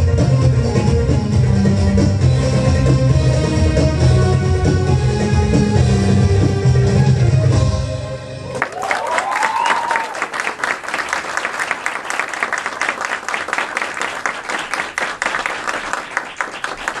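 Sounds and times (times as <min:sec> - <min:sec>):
person cheering: 0:08.6 - 0:10.4
audience applauding: 0:08.6 - 0:17.0.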